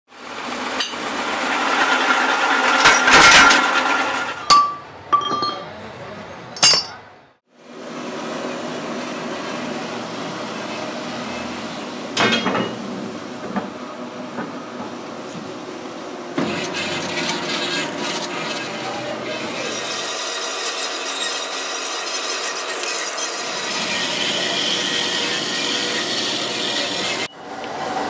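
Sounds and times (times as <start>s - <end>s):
workshop machinery running: 0.1s - 5.6s, 7.6s - 28.0s
metal clinks and clanks: 6.6s - 7.0s.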